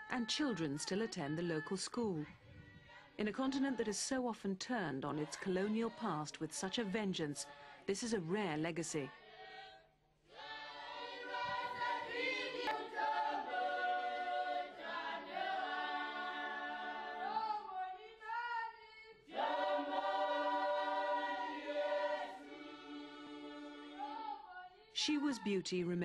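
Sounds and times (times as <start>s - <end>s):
congregation singing a hymn: 5.1s - 6.6s, 9.1s - 25.2s.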